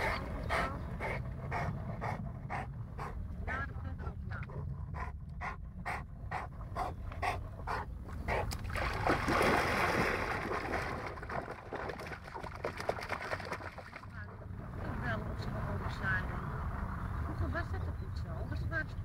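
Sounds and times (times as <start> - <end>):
dog panting: 0.0 - 8.6
loud water splash: 8.6 - 14.0.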